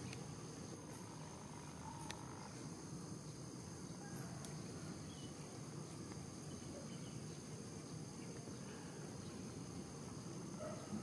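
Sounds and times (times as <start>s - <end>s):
high-pitched insect drone: 0.0s - 4.4s.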